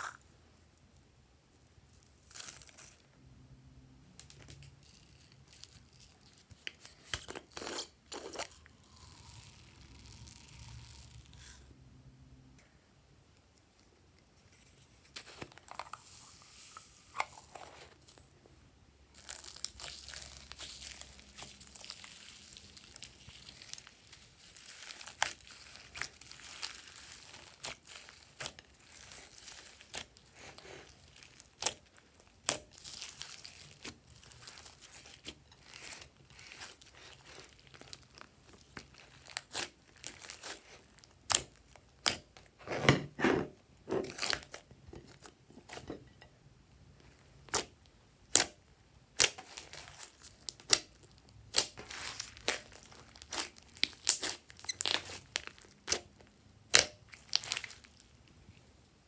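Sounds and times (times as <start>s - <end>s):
slime crackling and popping: 19.2s - 42.4s, 47.4s - 58.2s.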